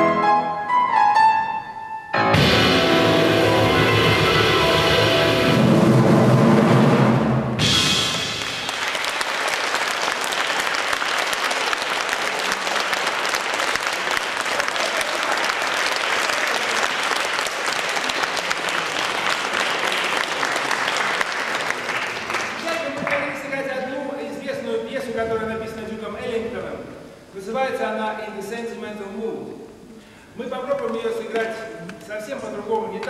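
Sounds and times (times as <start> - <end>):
jazz trio playing: 0.0 - 8.4
audience applauding: 8.0 - 23.5.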